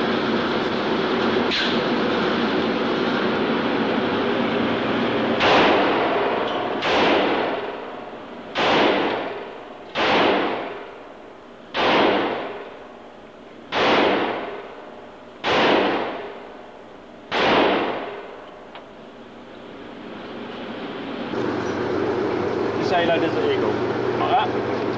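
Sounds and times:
pistol shots echoing indoors: 5.4 - 6.2, 6.8 - 7.8, 8.5 - 11.0, 11.7 - 12.7, 13.7 - 14.8, 15.4 - 16.5, 17.3 - 18.3.

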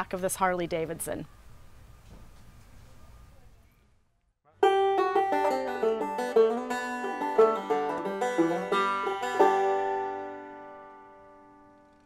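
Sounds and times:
plucked string tune: 4.5 - 12.0.

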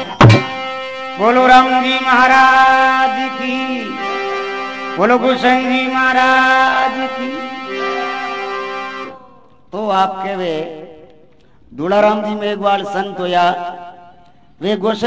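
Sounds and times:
melodic instrument long phrases: 0.0 - 9.7.

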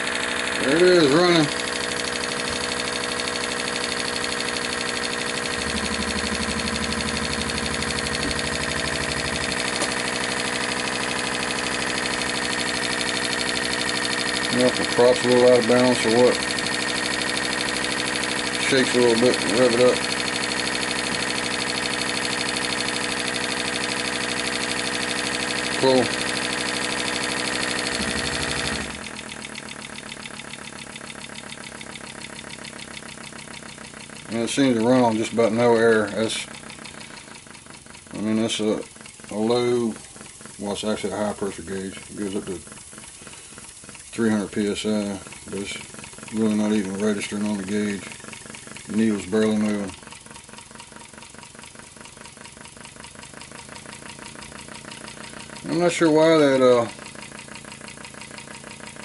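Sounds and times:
model engine exhaust puffs: 0.0 - 59.0
deeper hum: 1.5 - 15.0.

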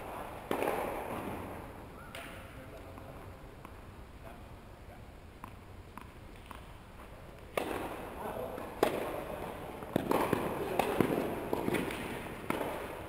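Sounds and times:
racket hitting tennis ball: 0.0 - 3.8, 5.4 - 6.7, 7.4 - 13.0
ball bouncing: 0.4 - 3.8, 5.4 - 8.0, 8.6 - 13.0.

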